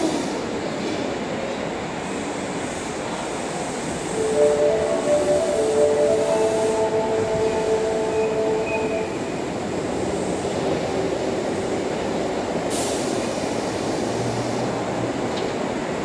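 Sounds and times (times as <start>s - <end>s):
train wheel and track rumble: 0.0s - 16.0s.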